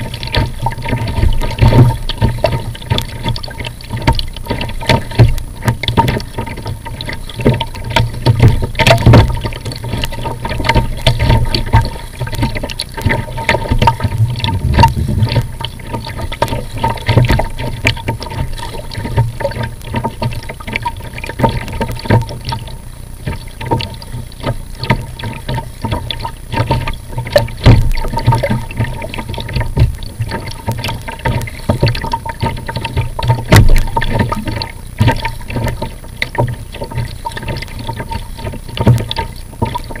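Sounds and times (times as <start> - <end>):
water splashing against kayak: 0.0 - 40.0
wind rumbling on microphone: 13.7 - 16.5.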